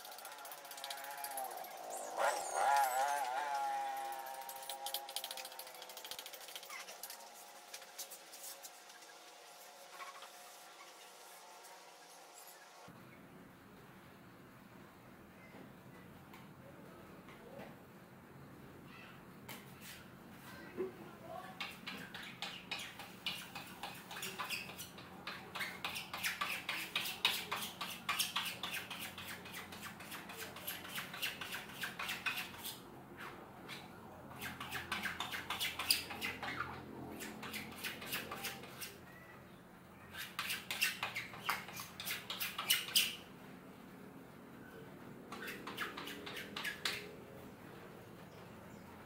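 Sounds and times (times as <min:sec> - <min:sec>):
squeegee scraping over mesh: 0:00.0 - 0:12.8.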